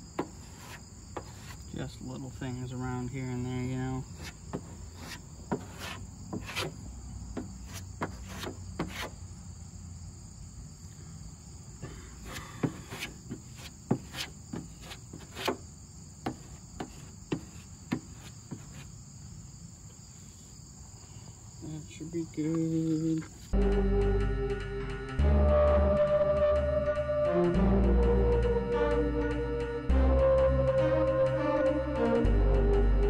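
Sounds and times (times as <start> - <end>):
insects droning: 0.0 - 33.0
plastic spreader scraping on metal: 4.1 - 6.9, 7.5 - 9.2.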